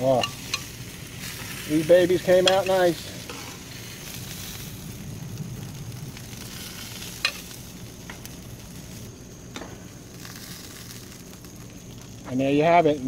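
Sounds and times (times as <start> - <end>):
chicken wings sizzling on grill: 0.0 - 13.0
tongs clicking: 0.2 - 0.7.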